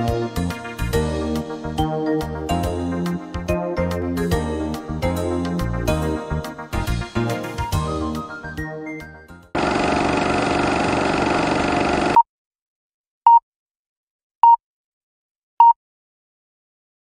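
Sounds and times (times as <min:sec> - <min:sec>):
projector whirring rattle: 0:09.6 - 0:12.2.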